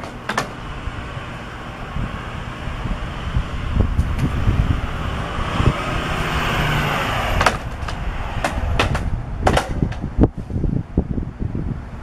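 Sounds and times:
sharp clicks and knocks: 0.0s - 0.6s, 7.4s - 10.1s
wind rumbling on microphone: 0.0s - 12.0s.

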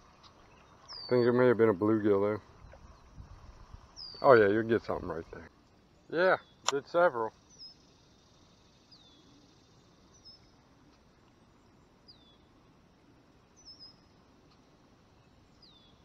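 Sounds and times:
bird chirping: 0.0s - 12.6s, 13.4s - 16.0s.

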